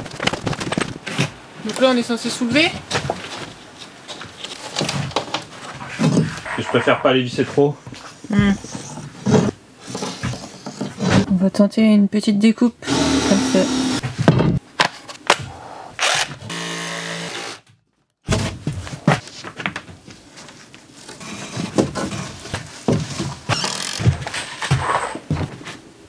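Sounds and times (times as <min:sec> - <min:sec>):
electric saw motor: 0:12.8 - 0:14.0, 0:16.0 - 0:17.6
saw rasping through board: 0:12.9 - 0:14.0.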